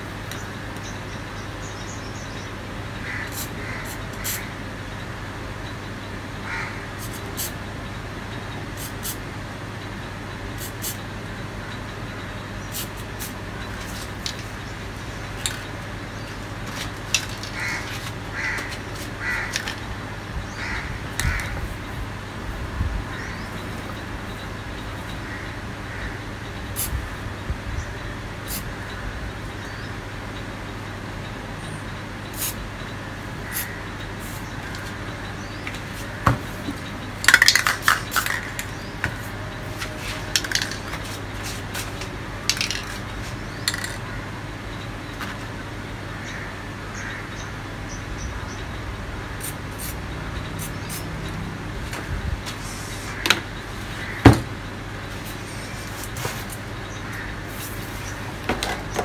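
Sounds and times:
spray can hissing: 0:08.8 - 0:09.2, 0:10.6 - 0:11.0, 0:12.7 - 0:14.4, 0:32.4 - 0:32.6.

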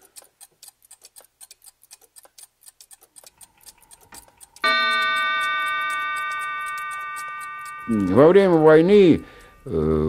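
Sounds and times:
mechanical clock ticking: 0:00.0 - 0:10.0
clock bell chime: 0:04.6 - 0:09.7.

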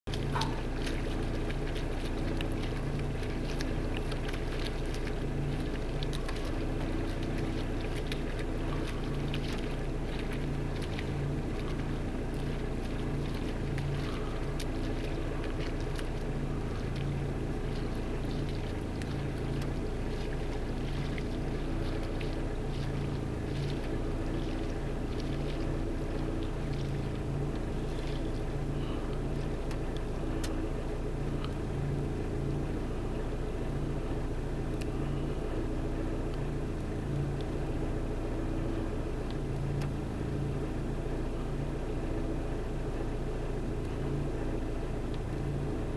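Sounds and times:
engine running with low rumble: 0:00.0 - 0:45.9.

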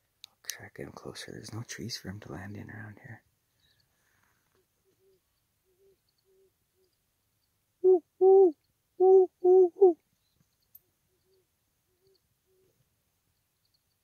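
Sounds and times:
distant owl hoots: 0:07.8 - 0:10.0
loud owl hoots: 0:07.8 - 0:10.0.

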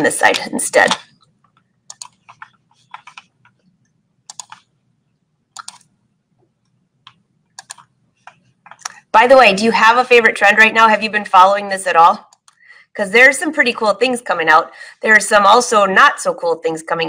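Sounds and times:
computer keyboard taps: 0:07.1 - 0:09.0.

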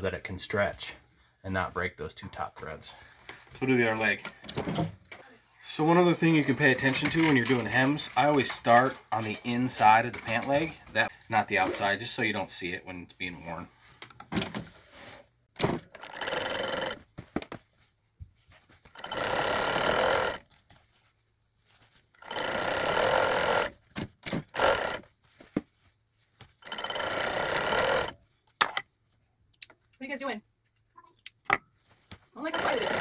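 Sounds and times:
sewing machine stitching: 0:15.6 - 0:17.0, 0:18.9 - 0:20.4, 0:22.2 - 0:25.1, 0:26.6 - 0:28.2, 0:32.4 - 0:33.0.

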